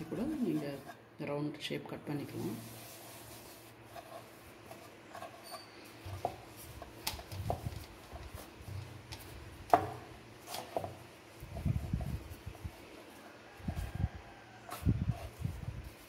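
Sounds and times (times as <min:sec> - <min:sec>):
rolling pin rolling dough: 0:00.0 - 0:01.0, 0:02.3 - 0:16.0
wood knocking on wood: 0:09.7 - 0:10.1.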